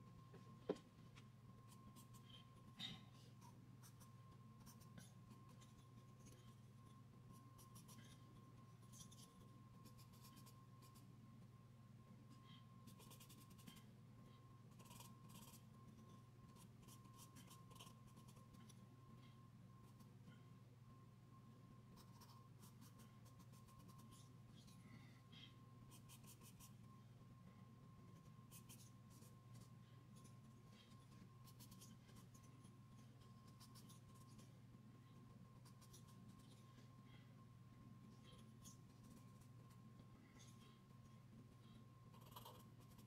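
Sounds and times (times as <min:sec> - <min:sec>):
low steady hum: 0:00.0 - 0:43.0
pencil scratching on paper: 0:07.3 - 0:11.0, 0:12.9 - 0:13.8, 0:14.7 - 0:18.8, 0:28.3 - 0:34.5.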